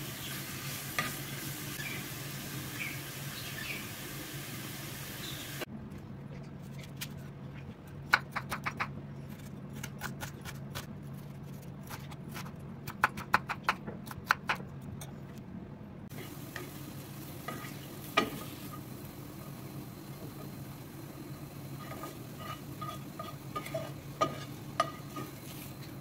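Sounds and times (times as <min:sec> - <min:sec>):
food sizzling in frying pan: 0:00.0 - 0:05.7, 0:16.1 - 0:26.0
steady low hum: 0:14.0 - 0:26.0.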